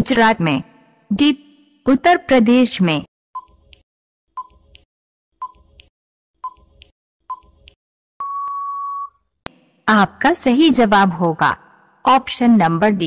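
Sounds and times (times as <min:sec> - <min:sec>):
long steady beep: 0:08.2 - 0:09.1
short electronic beeps: 0:08.2 - 0:09.1.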